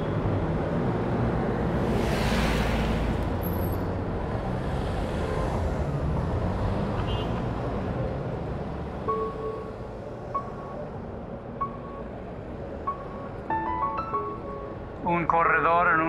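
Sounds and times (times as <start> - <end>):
traffic rumble: 0.0 - 16.0
car passing whoosh: 1.0 - 6.1.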